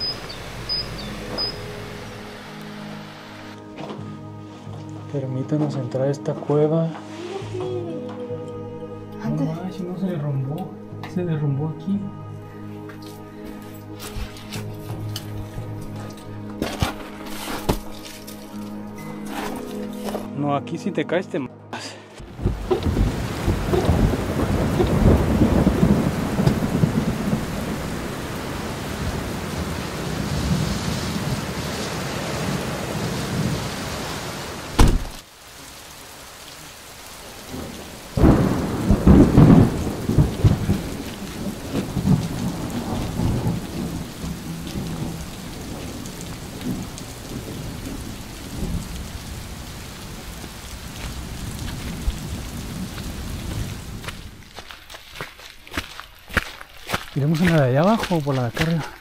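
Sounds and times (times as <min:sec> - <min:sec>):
rain: 0:00.0 - 0:04.7, 0:12.5 - 0:19.5, 0:21.8 - 0:59.0
sharp thunder crack: 0:22.2 - 0:27.6, 0:37.5 - 0:46.0
thunder rumbling: 0:22.2 - 0:34.9, 0:37.5 - 0:54.4.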